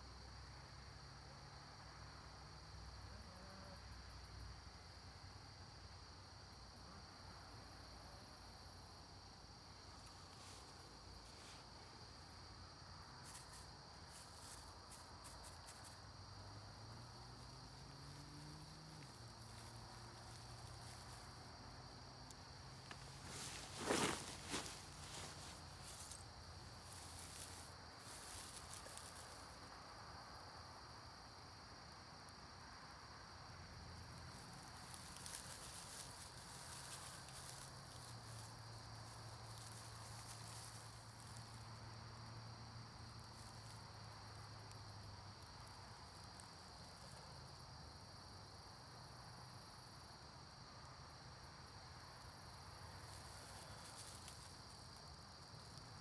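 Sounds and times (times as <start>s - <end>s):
insects trilling: 0.0s - 56.0s
dry grass rustling: 9.3s - 30.0s, 33.9s - 47.2s, 52.2s - 56.0s.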